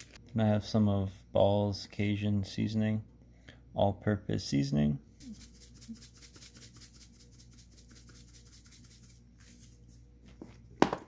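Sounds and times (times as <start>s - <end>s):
shaker can rattling: 5.2s - 10.0s.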